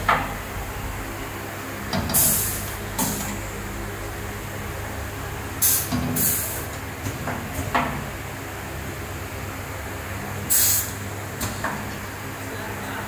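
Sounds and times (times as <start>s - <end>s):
low machine hum: 0.0s - 13.0s
compressed air hissing: 2.1s - 3.4s, 5.6s - 6.7s, 10.5s - 11.0s.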